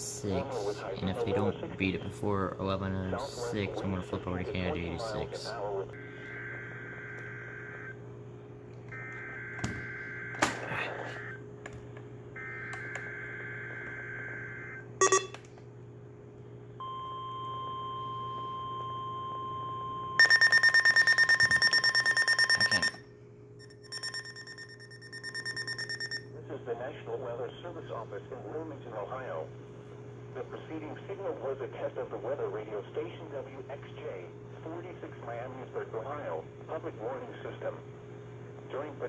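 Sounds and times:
steady attention tone: 0:13.2 - 0:15.4, 0:16.8 - 0:26.4
pulsing alert beep: 0:15.0 - 0:15.4.

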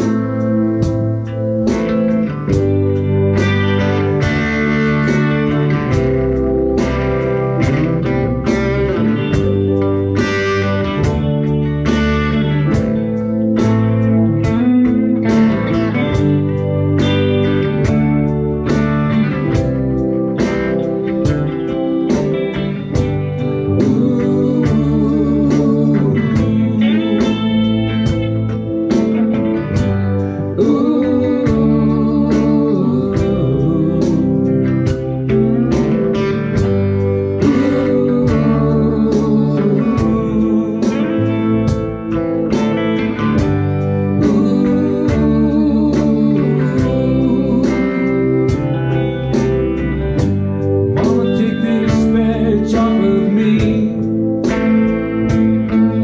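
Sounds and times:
steady drum beat: 0:00.0 - 0:32.5, 0:34.9 - 0:46.1, 0:53.6 - 0:56.0
electric guitars: 0:00.0 - 0:56.0.

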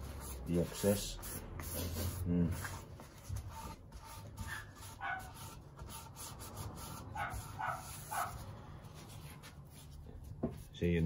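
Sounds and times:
dog barking: 0:05.0 - 0:05.3, 0:07.2 - 0:08.4.

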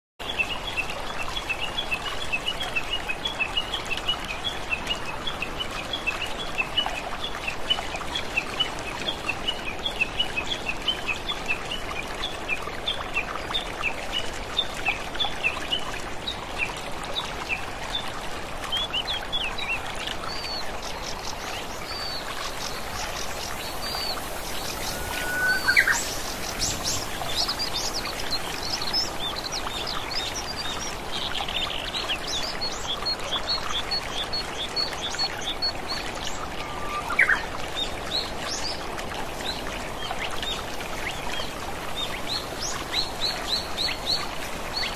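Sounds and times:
birds chirping: 0:20.4 - 0:31.0
waterfall rushing: 0:21.2 - 0:31.1.

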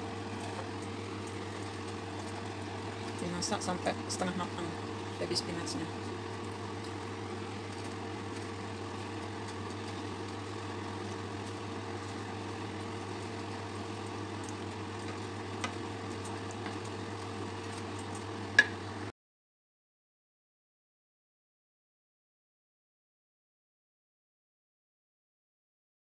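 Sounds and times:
vegetables sizzling in pan: 0:00.0 - 0:19.1.

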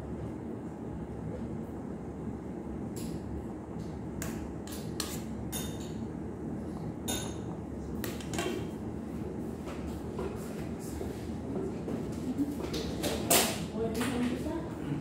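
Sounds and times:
low background hum: 0:00.0 - 0:15.0
metal spoon clinking on steel bowl: 0:05.0 - 0:06.0.

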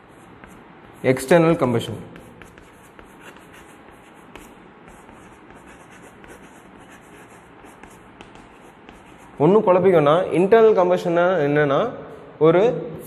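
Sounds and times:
chalk writing on blackboard: 0:00.0 - 0:09.4.

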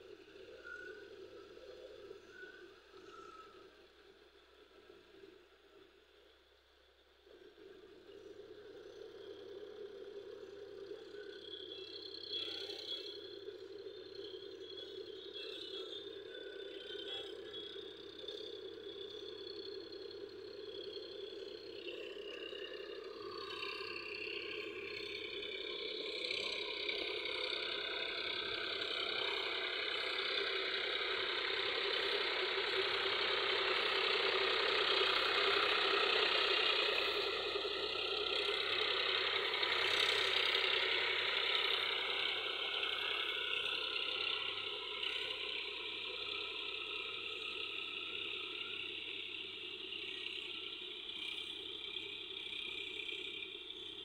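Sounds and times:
tractor engine running: 0:16.1 - 0:54.0.

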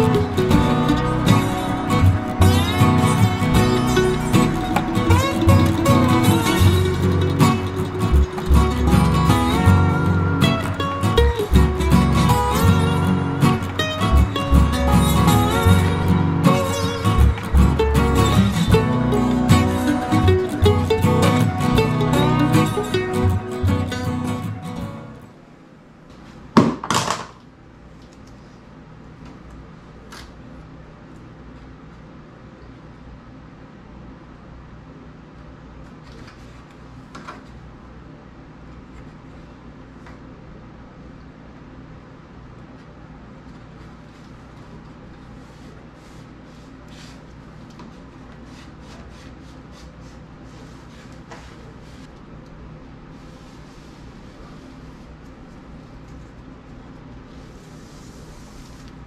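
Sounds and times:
steady low hum: 0:00.0 - 0:26.6.

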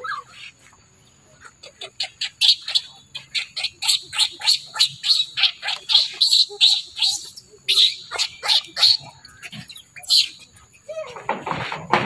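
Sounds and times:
infant monkey shrill screeches: 0:01.7 - 0:10.6.

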